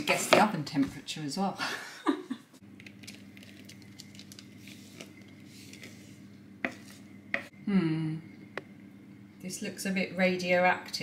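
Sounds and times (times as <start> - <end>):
batter squishing and pattering: 2.6 - 7.1
steady low hum: 2.6 - 11.0.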